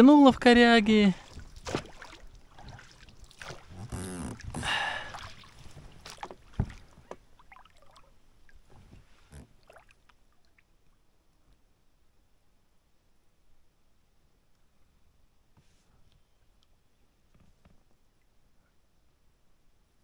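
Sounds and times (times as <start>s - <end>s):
water sloshing: 1.1s - 10.8s.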